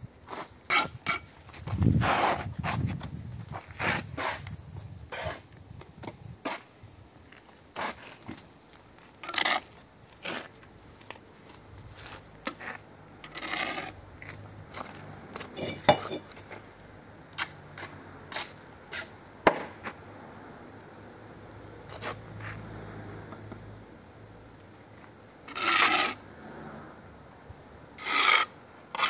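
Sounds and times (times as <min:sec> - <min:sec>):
trowel scraping mortar: 0:00.3 - 0:03.0, 0:03.6 - 0:05.6, 0:07.8 - 0:08.4, 0:09.2 - 0:10.6, 0:11.9 - 0:16.5, 0:17.4 - 0:19.2, 0:25.5 - 0:26.2, 0:28.0 - 0:29.0
trowel knocking bricks: 0:15.6 - 0:16.3, 0:18.4 - 0:19.8.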